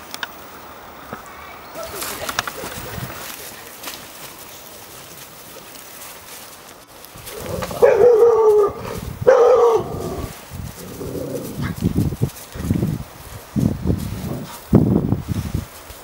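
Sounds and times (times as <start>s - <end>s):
footsteps through dry leaves: 1.7s - 16.0s
dog barking: 7.7s - 10.3s.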